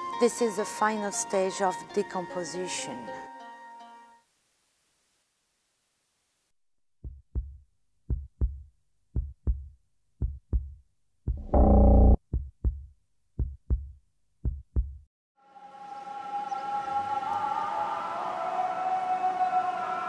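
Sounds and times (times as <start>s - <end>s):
heartbeat thumps: 7.0s - 8.6s, 9.2s - 15.1s.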